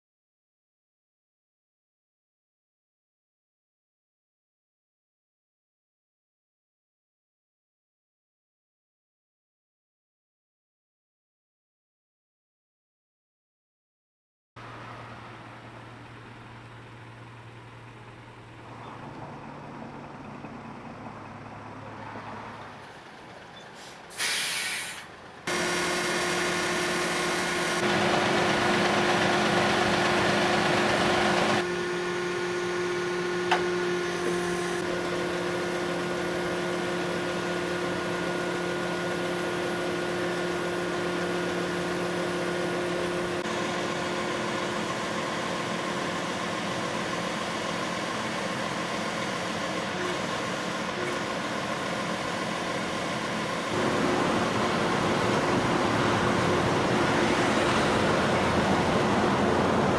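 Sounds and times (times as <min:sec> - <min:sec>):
truck engine and hydraulic hum: 0:14.6 - 0:59.9
short hissy rush: 0:23.8 - 0:25.2.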